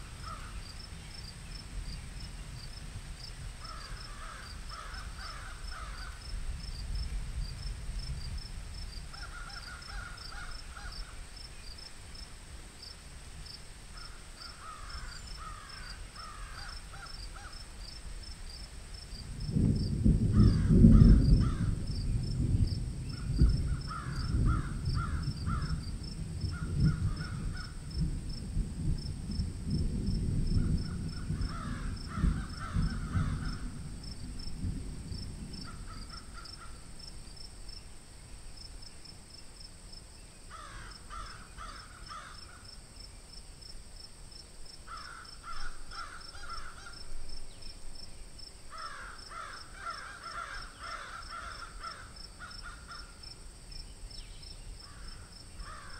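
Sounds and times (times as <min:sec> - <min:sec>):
insects chirping: 0:00.0 - 0:55.9
crows cawing: 0:00.2 - 0:00.6, 0:03.6 - 0:06.3, 0:09.1 - 0:11.2, 0:14.0 - 0:17.6, 0:20.3 - 0:21.8, 0:23.7 - 0:25.8, 0:26.5 - 0:27.8, 0:30.6 - 0:33.9, 0:35.6 - 0:36.9, 0:40.5 - 0:42.7, 0:44.9 - 0:47.1, 0:48.7 - 0:53.2, 0:54.8 - 0:55.9.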